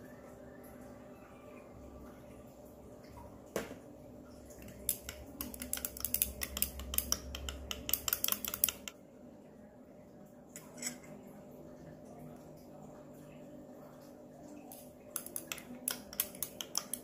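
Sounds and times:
metal rod clinking in glass beaker: 0:10.6 - 0:11.2.

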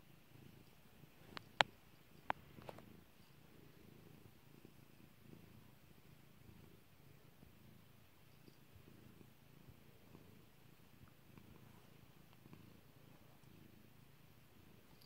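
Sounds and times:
cat purring faintly: 0:00.0 - 0:15.0.

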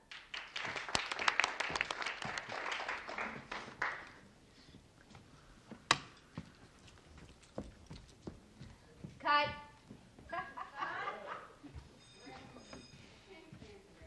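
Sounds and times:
small group clapping: 0:00.0 - 0:04.3.

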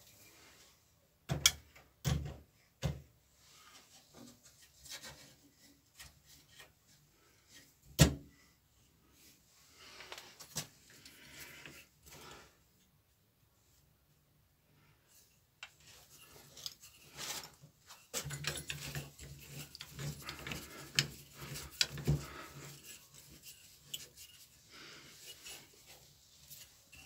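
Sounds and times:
metal-on-metal scraping: 0:15.8 - 0:27.0.

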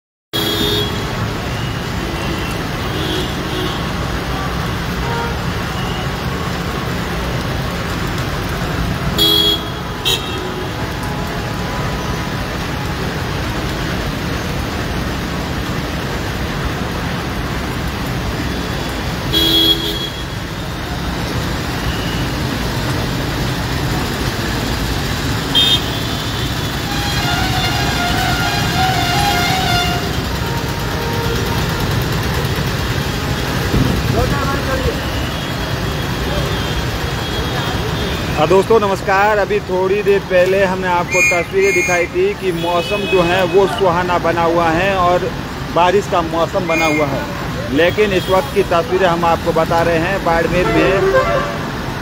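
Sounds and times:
vehicle horns honking: 0:00.3 - 0:01.2, 0:05.0 - 0:06.0, 0:09.2 - 0:10.6, 0:19.3 - 0:20.4, 0:25.5 - 0:32.2, 0:41.1 - 0:43.8, 0:46.6 - 0:48.6, 0:50.4 - 0:52.0
wet street traffic: 0:00.3 - 0:52.0
rain hiss: 0:00.4 - 0:52.0.

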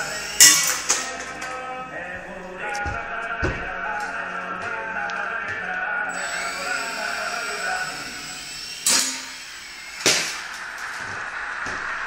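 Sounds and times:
toy helicopter rotor motors whining: 0:00.0 - 0:00.5, 0:06.1 - 0:10.6.

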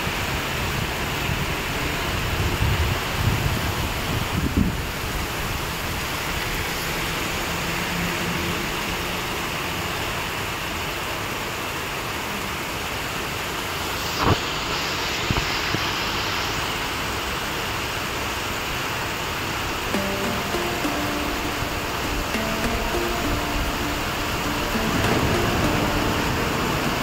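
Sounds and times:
heavy rain pouring: 0:19.9 - 0:27.0.

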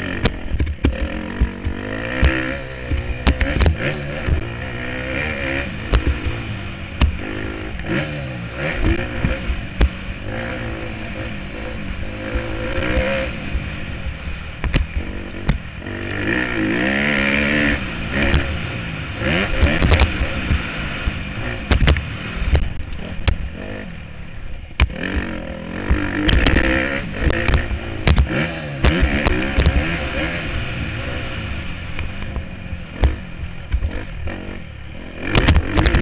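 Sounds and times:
dirt bike engine revving: 0:00.0 - 0:36.0
sharp knocks and clatter: 0:00.1 - 0:04.5, 0:14.6 - 0:15.7, 0:21.6 - 0:23.5, 0:24.8 - 0:29.9, 0:35.3 - 0:36.0.

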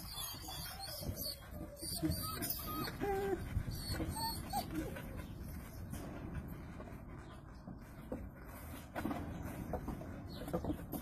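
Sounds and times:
puppies whimpering: 0:00.0 - 0:06.0.

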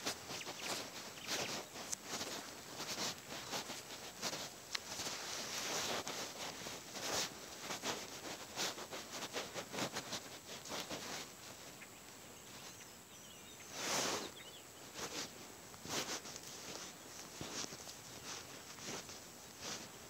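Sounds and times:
bare feet stepping through dry grass: 0:00.0 - 0:12.8, 0:13.4 - 0:20.0
faint bird chirps: 0:00.2 - 0:01.8, 0:11.5 - 0:15.1.

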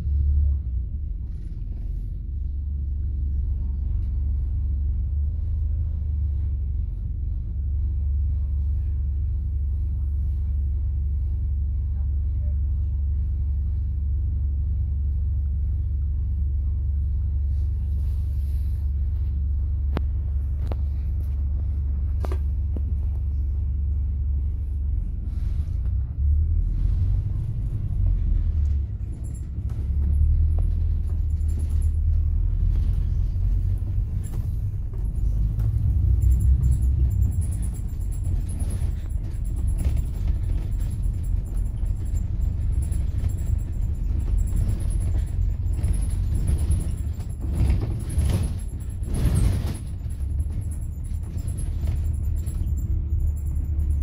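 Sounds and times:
bus engine and road rumble: 0:00.0 - 0:54.0
sharp clicks and rattles: 0:28.6 - 0:54.0.

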